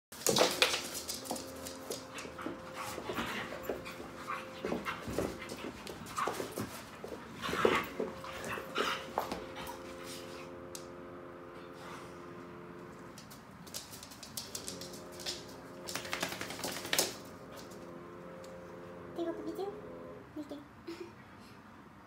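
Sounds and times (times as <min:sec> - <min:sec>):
dog claws clicking on tiles: 0:00.2 - 0:09.8, 0:13.2 - 0:17.8
dogs panting: 0:00.8 - 0:10.6.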